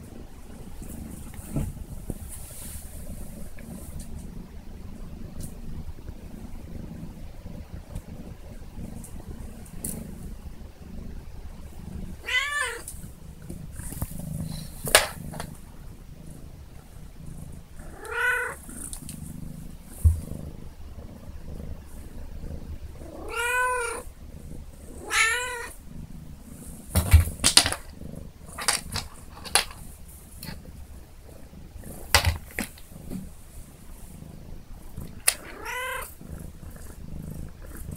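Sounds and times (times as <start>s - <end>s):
kitten purring: 0.0s - 37.9s
kitten meowing: 12.2s - 12.9s, 18.0s - 18.6s, 23.2s - 24.0s, 25.0s - 25.7s, 35.4s - 36.1s.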